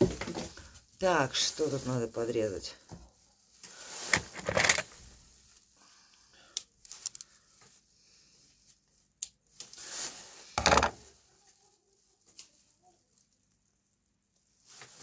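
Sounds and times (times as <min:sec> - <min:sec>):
plastic bag rustling: 0:00.0 - 0:06.1, 0:08.6 - 0:13.2, 0:14.6 - 0:15.0.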